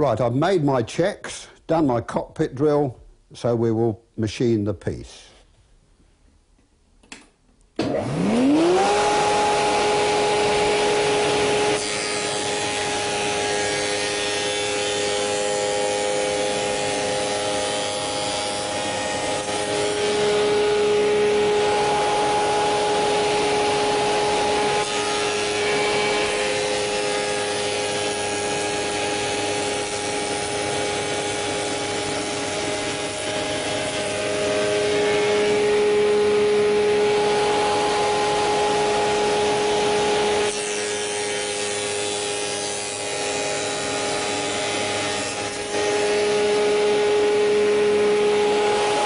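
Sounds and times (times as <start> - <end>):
cutter cutting wood: 7.8 - 49.0
spindle moulder whine: 19.2 - 27.4, 30.4 - 40.6, 45.4 - 49.0.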